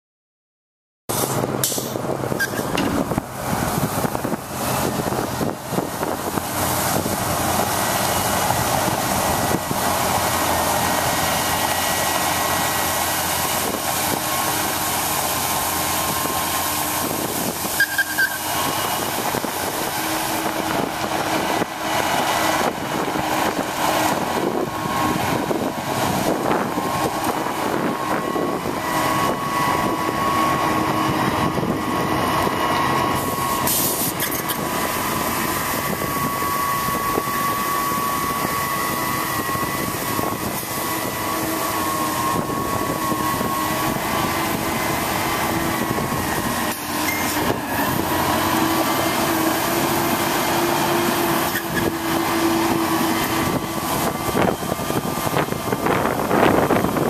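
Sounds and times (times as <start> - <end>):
brief high squeak: 1.1 - 2.8, 17.8 - 18.5, 47.0 - 47.4
diesel engine running: 1.1 - 57.0.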